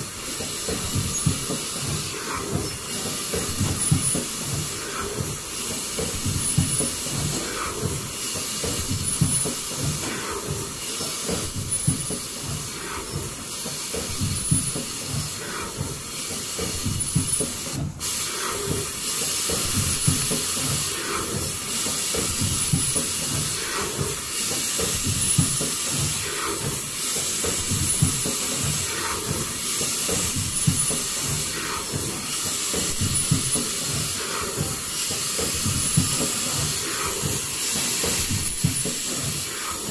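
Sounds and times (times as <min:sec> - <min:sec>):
fast mechanical clatter: 0:00.0 - 0:39.9
machine hissing: 0:00.0 - 0:39.9.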